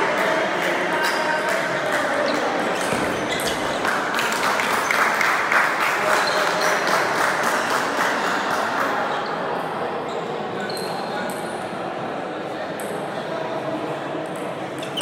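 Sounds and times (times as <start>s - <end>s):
table tennis ball bouncing: 2.8s - 4.7s.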